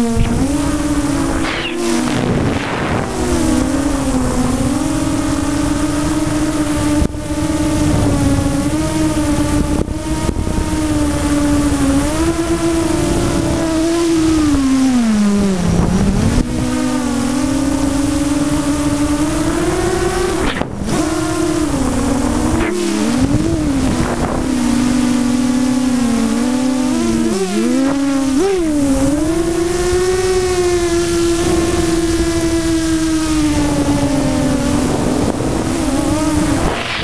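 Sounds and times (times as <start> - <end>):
wind rush: 0.0 - 13.8, 17.8 - 37.0
drone motors whining: 0.0 - 37.0.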